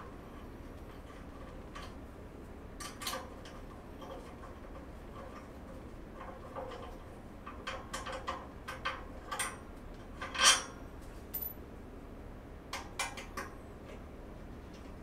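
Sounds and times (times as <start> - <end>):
light metal clicks and clinks: 11.3 - 11.6.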